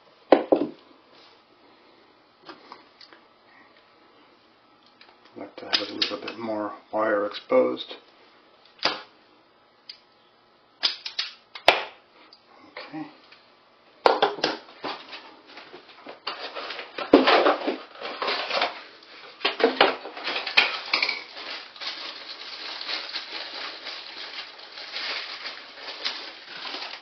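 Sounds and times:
packaging rustling: 14.8 - 27.0
small hard parts clattering: 16.2 - 18.8, 19.4 - 27.0.

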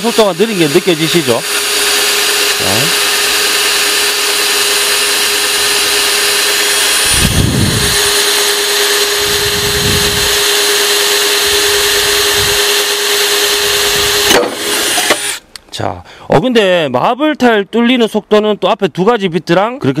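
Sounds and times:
drill motor whine: 0.0 - 15.4.

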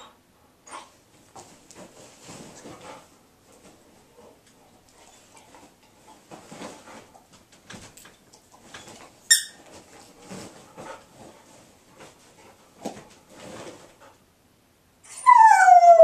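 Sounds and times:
dog pawing at bedding: 1.1 - 14.2
dog squeak: 9.3 - 9.6.

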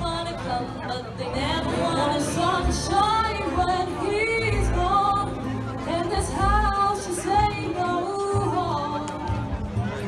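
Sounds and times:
woman singing into microphone: 0.0 - 9.6.

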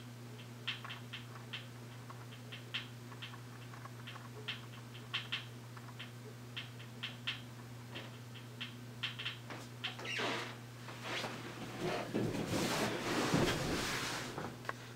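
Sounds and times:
low electrical hum: 0.0 - 14.9
small clicks and ticks: 0.4 - 10.1.

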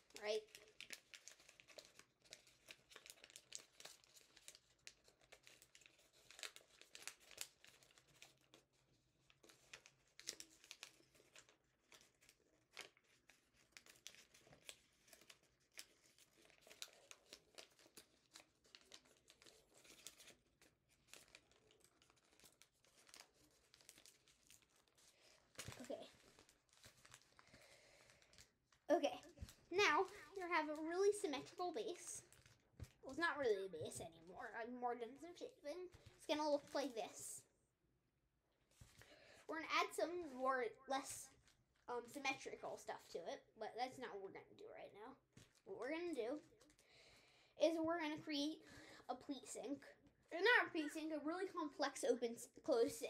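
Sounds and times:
paper crinkling and rustling: 0.0 - 37.2, 38.7 - 39.2, 45.3 - 45.8.

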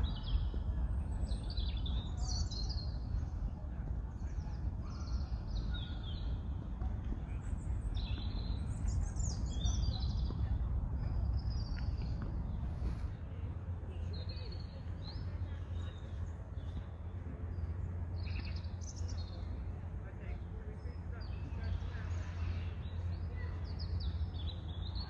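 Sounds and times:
songbirds chirping: 0.0 - 25.0
steady low rumble: 0.0 - 25.0.

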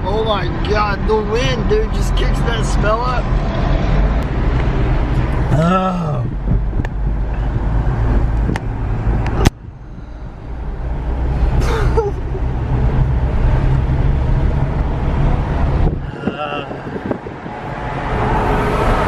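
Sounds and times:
engine and road rumble: 0.0 - 19.0
wind rushing in: 14.6 - 19.0.

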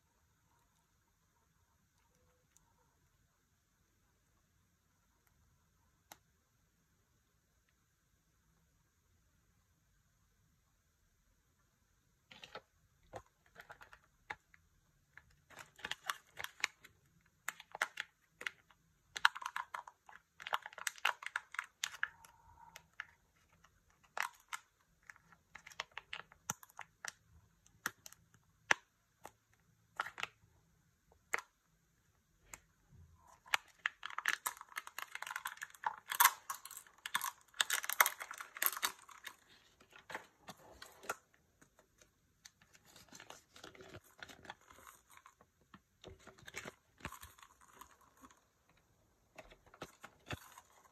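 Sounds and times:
wrapper crinkling and tearing: 33.3 - 41.2.

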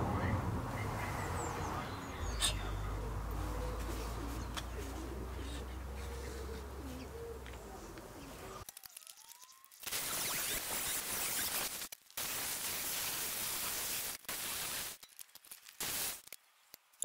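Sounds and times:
pigeon cooing: 0.8 - 8.6.

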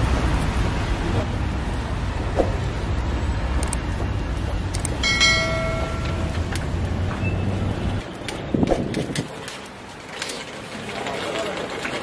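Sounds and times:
low hum of street traffic: 0.0 - 12.0
short metallic ring: 5.0 - 6.4.

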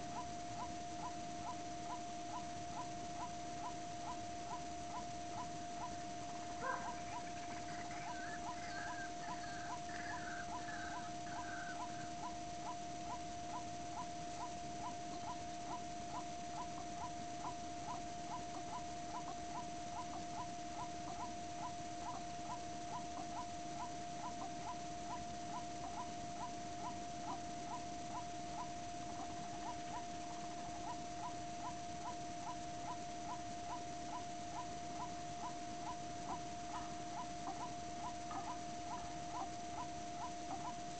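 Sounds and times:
faint steady hum: 0.0 - 40.9
waterhen calling: 6.6 - 12.4, 32.5 - 40.8.

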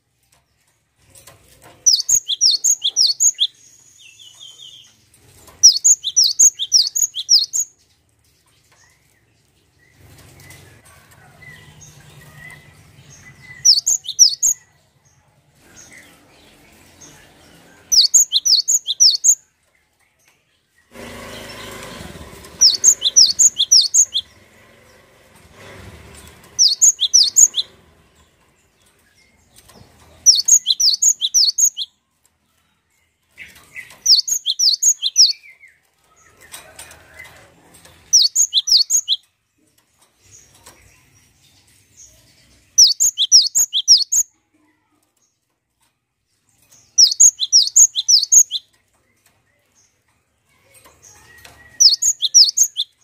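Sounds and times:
bird rapid high chirps: 1.9 - 5.0, 5.6 - 7.8, 13.2 - 14.6, 17.9 - 19.4, 22.6 - 24.4, 26.5 - 27.8, 30.2 - 32.0, 33.7 - 35.5, 38.1 - 39.2, 42.7 - 44.3, 46.9 - 48.7, 51.1 - 53.0.

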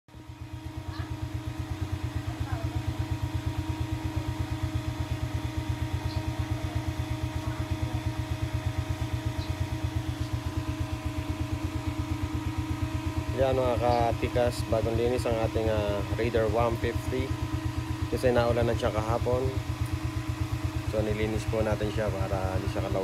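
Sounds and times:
motorcycle engine idling: 0.1 - 23.0.

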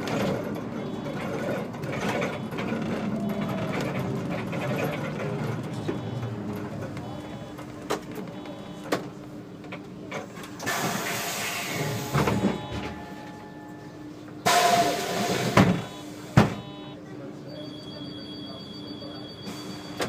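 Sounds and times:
bus engine idling: 0.0 - 16.8
bus doors knocking: 12.1 - 13.2, 15.4 - 16.7.

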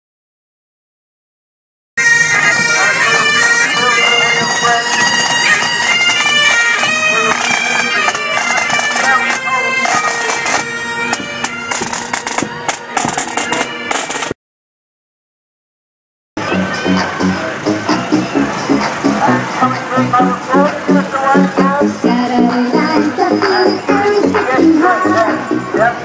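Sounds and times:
bagpipes playing a tune: 2.0 - 14.3
snare and bass drums: 9.8 - 14.3.

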